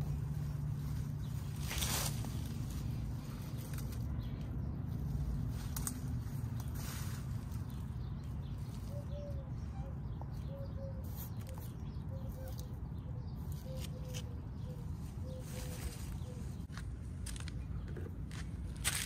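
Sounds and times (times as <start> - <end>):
steady low rumble: 0.0 - 10.5
bird calling: 7.6 - 16.8.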